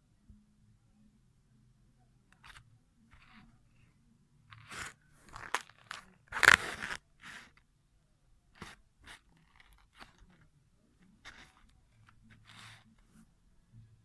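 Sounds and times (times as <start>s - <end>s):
paper crinkling and scraping: 4.5s - 7.6s, 11.2s - 13.0s.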